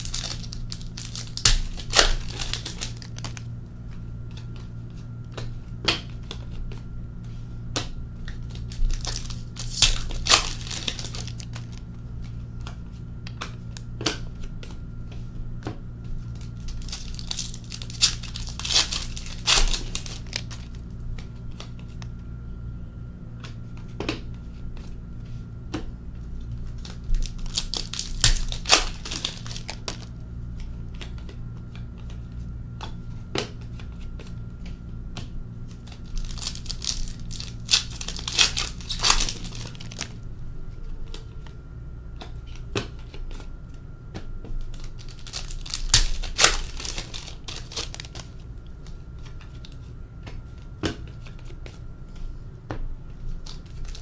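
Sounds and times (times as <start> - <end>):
cards clicking while handled: 0.0 - 3.5, 7.7 - 11.8, 16.3 - 22.1, 26.7 - 32.2, 32.8 - 40.2, 44.1 - 52.3
foil wrappers tearing and crinkling: 0.0 - 3.5, 8.4 - 11.9, 16.4 - 20.9, 26.7 - 30.1, 35.7 - 40.2, 44.7 - 48.4, 53.4 - 54.0.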